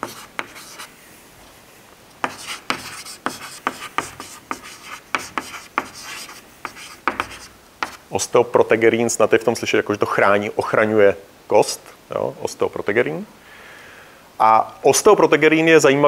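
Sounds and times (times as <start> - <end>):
chalk scratching on chalkboard: 0.0 - 0.9, 2.2 - 8.0.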